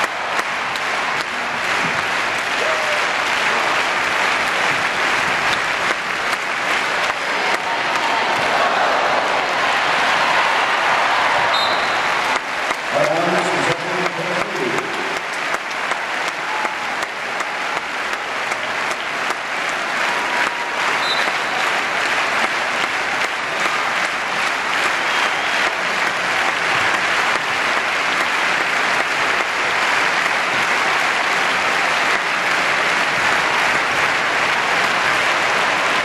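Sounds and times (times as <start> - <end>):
large crowd applauding: 0.0 - 36.0.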